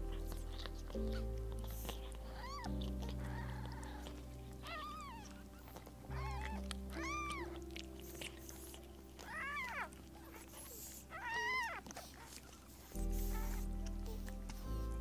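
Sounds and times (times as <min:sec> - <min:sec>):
background music: 0:00.0 - 0:15.0
cat meowing: 0:02.4 - 0:07.6, 0:09.2 - 0:10.0, 0:11.1 - 0:12.0.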